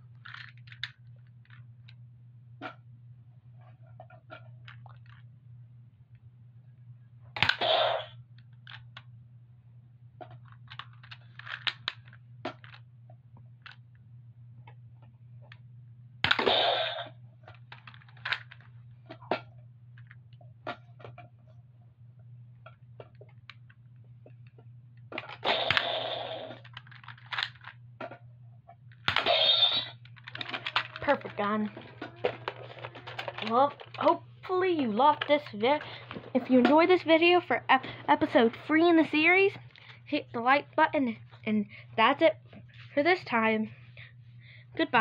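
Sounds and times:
toy dart blaster shots: 0:07.4 - 0:08.2, 0:16.2 - 0:17.1, 0:25.4 - 0:26.6, 0:29.1 - 0:30.0
blaster reloading clicks and rattles: 0:07.4 - 0:08.9, 0:10.4 - 0:12.8, 0:16.2 - 0:17.1, 0:17.7 - 0:18.7, 0:25.2 - 0:27.7, 0:29.0 - 0:37.2.

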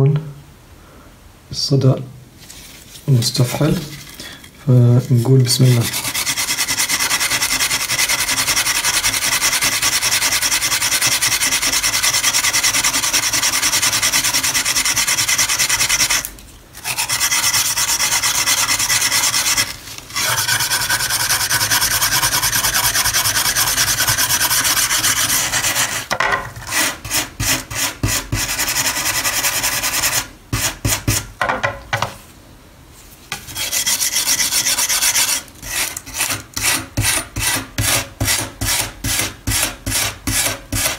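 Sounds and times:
wire brush scraping metal blade: 0:03.4 - 0:31.1, 0:33.4 - 0:40.9.

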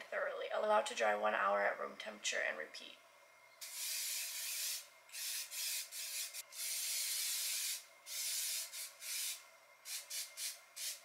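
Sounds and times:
aerosol can spraying: 0:03.6 - 0:11.0.

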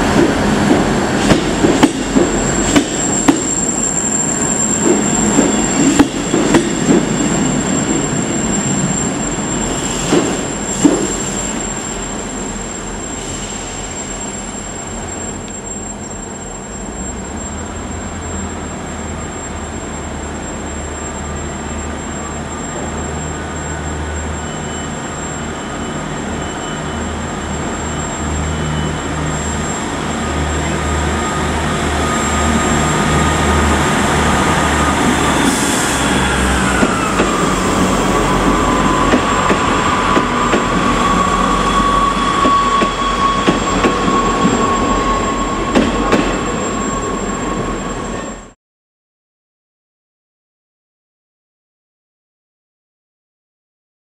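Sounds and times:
diesel train engine drone: 0:00.0 - 0:48.6
train wheels clicking over rail joints: 0:36.7 - 0:41.2, 0:42.2 - 0:44.7.

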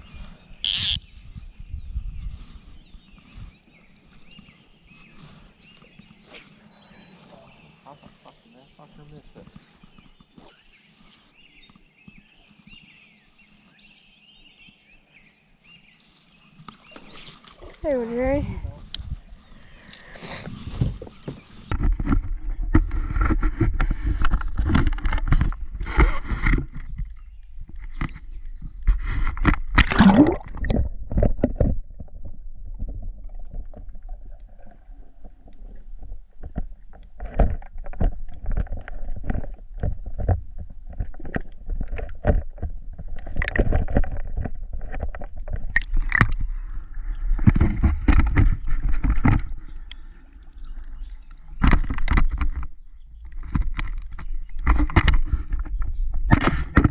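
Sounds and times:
knocks and splashes: 0:28.8 - 0:34.3, 0:36.0 - 0:56.9.

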